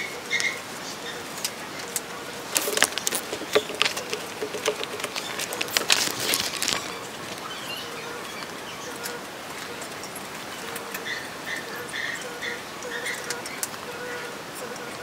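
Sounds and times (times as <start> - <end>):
pages rustling: 2.4 - 7.5.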